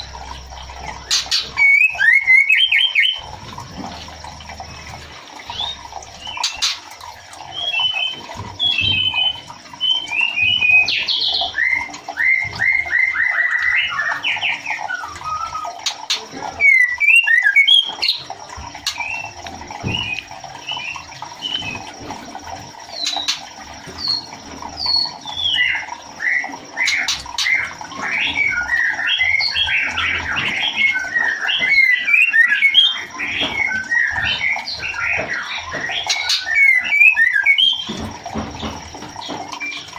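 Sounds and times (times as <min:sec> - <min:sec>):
bird whistling and chattering: 0:01.2 - 0:03.2, 0:07.6 - 0:18.2.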